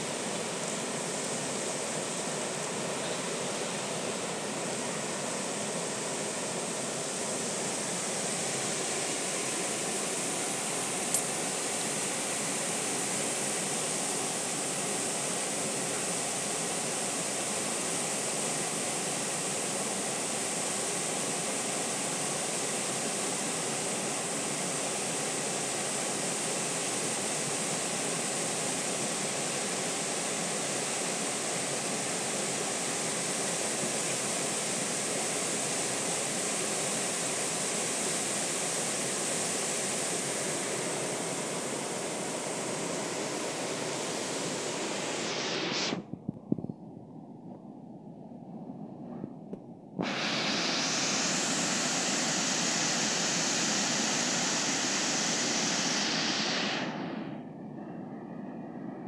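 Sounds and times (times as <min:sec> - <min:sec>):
waterfall rushing: 0:50.0 - 0:56.7.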